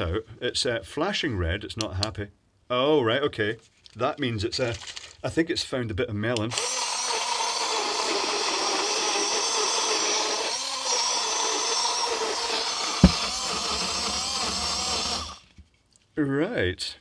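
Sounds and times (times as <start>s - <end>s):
blender motor running: 6.5s - 15.4s
thump: 13.0s - 13.4s.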